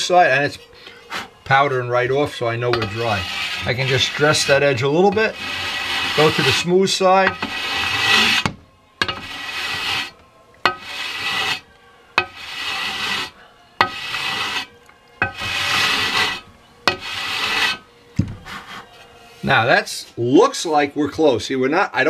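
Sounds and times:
cutting block rasping on epoxy: 2.6s - 11.6s, 12.2s - 17.8s.

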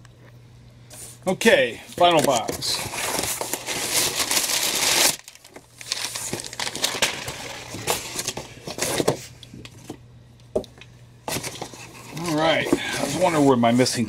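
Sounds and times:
cardboard and packing rustling: 2.0s - 10.0s, 11.2s - 14.0s.

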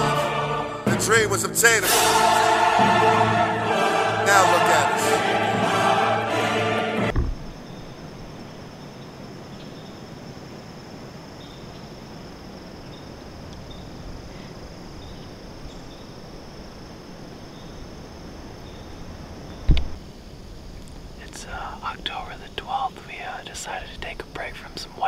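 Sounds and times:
insect chorus: 7.1s - 25.0s.

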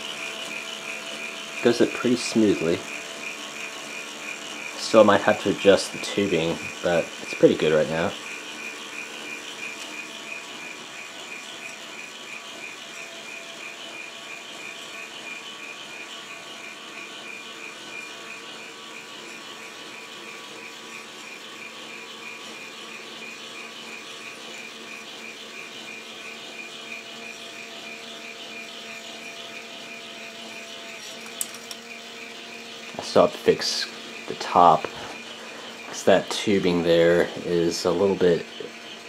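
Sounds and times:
toy motor buzzing with pulsing: 0.0s - 39.0s.

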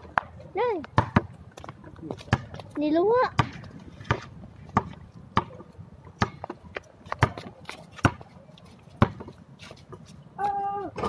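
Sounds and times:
basketball bouncing on concrete: 0.0s - 8.3s, 9.0s - 9.3s.

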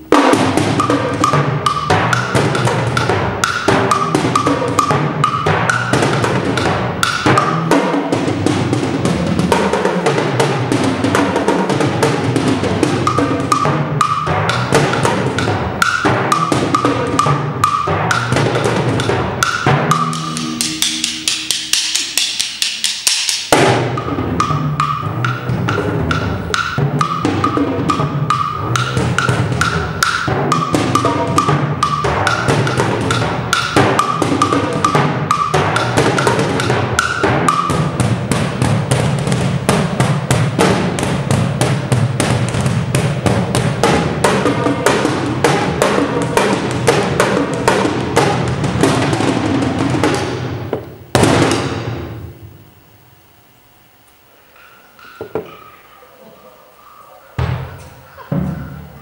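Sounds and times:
loud ringing drum stroke: 0.0s - 52.7s
rapid drum strokes: 0.0s - 52.8s.

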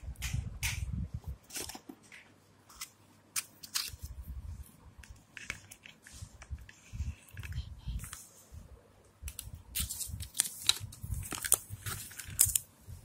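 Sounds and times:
packaging clicking and crinkling: 9.3s - 12.7s.

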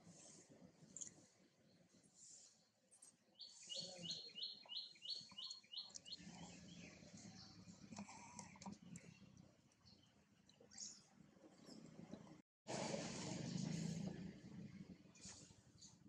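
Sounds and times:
bird chirping: 3.0s - 7.7s.

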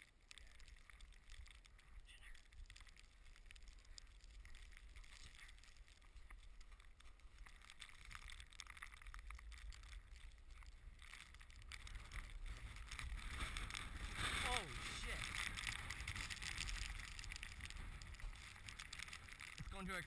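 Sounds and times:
wind rumble on microphone: 9.2s - 20.0s
shopping cart rattling on snow: 13.3s - 17.4s.

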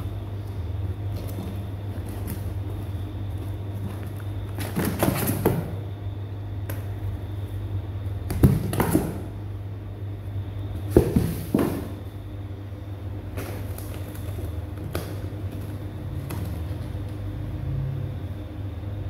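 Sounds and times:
steady low hum: 0.0s - 19.0s
kittens scrambling in cardboard box: 1.1s - 5.7s.

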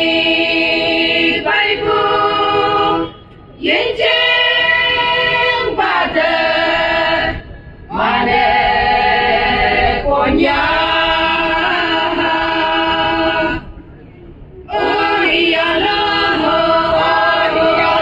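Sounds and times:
women singing together: 0.0s - 13.7s, 14.7s - 18.0s.

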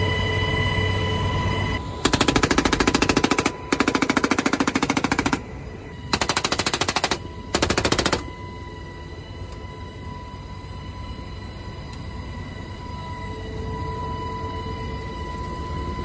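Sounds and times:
machine gun automatic fire: 2.0s - 5.4s, 6.1s - 8.3s.

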